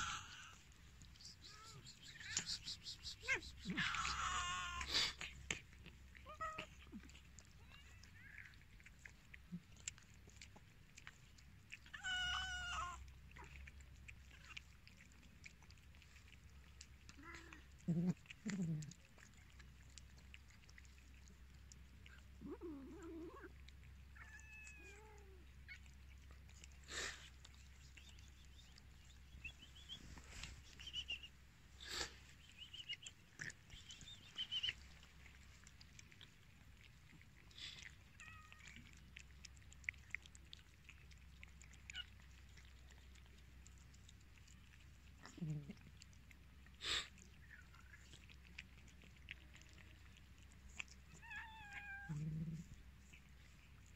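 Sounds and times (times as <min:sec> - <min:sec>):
low cat call: 0:00.0 - 0:05.1
cats chewing and lapping: 0:00.0 - 0:53.9
small clicks of eating: 0:00.0 - 0:53.9
cat meowing: 0:11.9 - 0:13.0, 0:24.2 - 0:25.8, 0:51.1 - 0:52.2.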